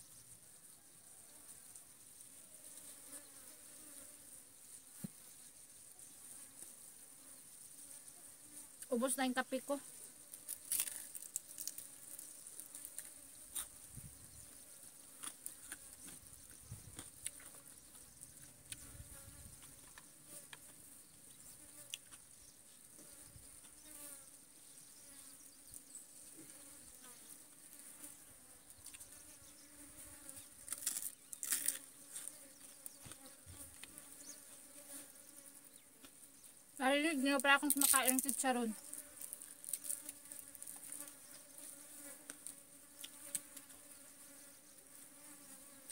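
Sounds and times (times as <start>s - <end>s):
flies buzzing: 0.0s - 45.9s
crunching crispy food: 10.3s - 13.7s, 30.6s - 32.3s, 37.6s - 41.2s.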